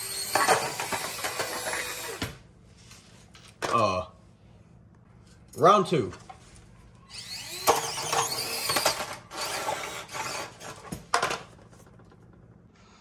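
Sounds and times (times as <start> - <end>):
small electric motors whining: 0.0 - 2.3, 7.1 - 10.8.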